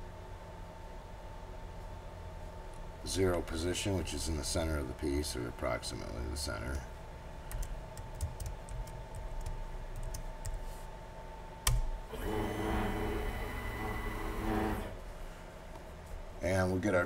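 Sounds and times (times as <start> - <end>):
computer keyboard typing: 7.5 - 10.6
router motors whining: 12.1 - 15.0.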